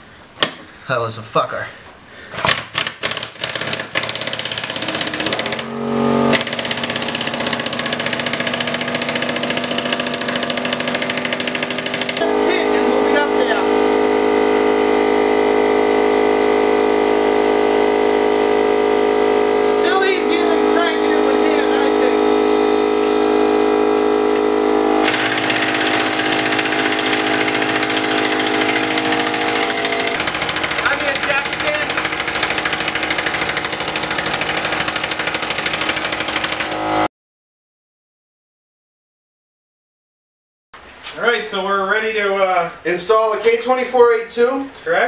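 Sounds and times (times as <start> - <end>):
pneumatic impact wrench hammering: 2.3 - 13.2, 24.4 - 37.1
steady droning tone: 12.2 - 31.8.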